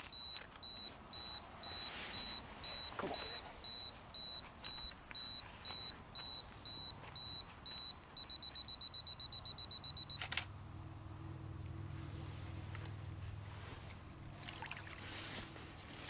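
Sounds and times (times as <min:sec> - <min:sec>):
small bird chirping: 0:00.0 - 0:10.5, 0:11.6 - 0:12.0, 0:14.2 - 0:14.5, 0:15.2 - 0:16.0
camera self-timer beeping: 0:00.0 - 0:10.6
camera shutter click: 0:10.2 - 0:10.5.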